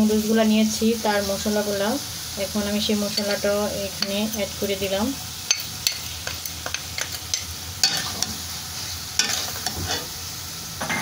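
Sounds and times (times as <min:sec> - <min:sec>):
food sizzling in a wok: 0:00.0 - 0:11.0
spatula scraping a metal pan: 0:05.5 - 0:10.1.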